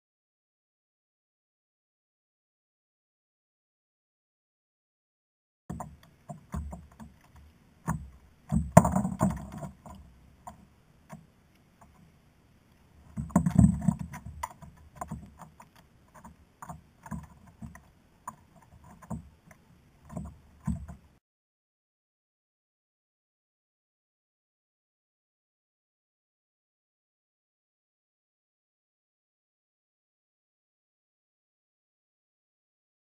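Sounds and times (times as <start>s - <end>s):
handling clicks and knocks: 5.7s - 11.2s, 13.1s - 21.1s.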